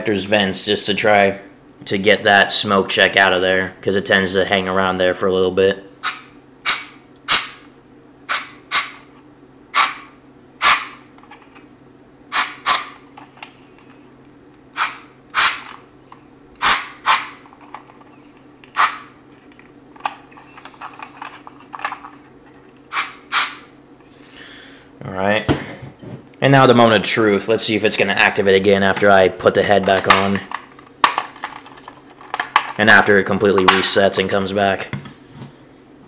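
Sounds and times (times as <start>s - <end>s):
compressed air hissing blasts: 14.8s - 15.7s, 22.9s - 23.7s.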